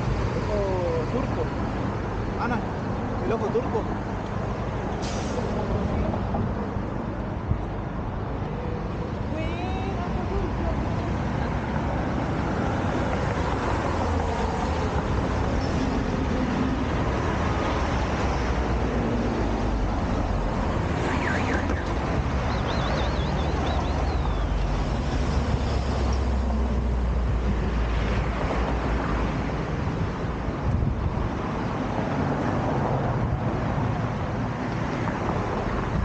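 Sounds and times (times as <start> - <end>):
street traffic rumble: 0.0 - 36.0
warbling high tone: 22.4 - 24.7.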